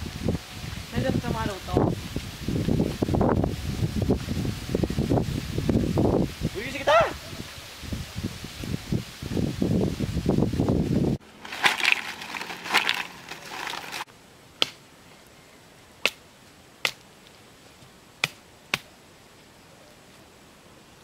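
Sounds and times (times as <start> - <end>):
faint fire hiss: 0.0 - 6.8, 7.4 - 10.7
leaves rustling: 0.0 - 21.0.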